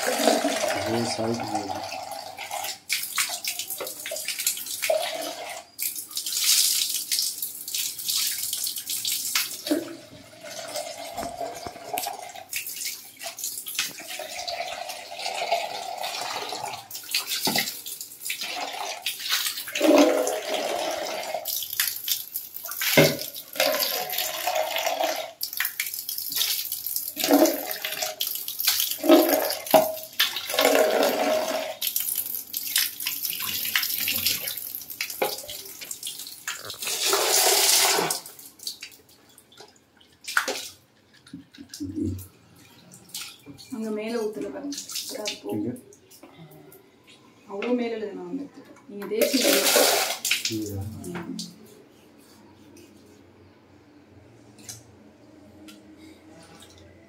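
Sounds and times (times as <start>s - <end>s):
water splashing on tiled floor: 0.0s - 46.2s, 49.1s - 51.7s
tap water pouring into a mug: 8.9s - 12.5s.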